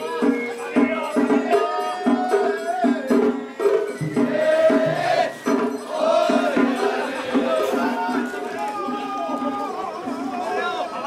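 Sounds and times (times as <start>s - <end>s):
jingling percussion beat: 0.0s - 11.0s
group chanting rhythmically: 4.1s - 8.9s.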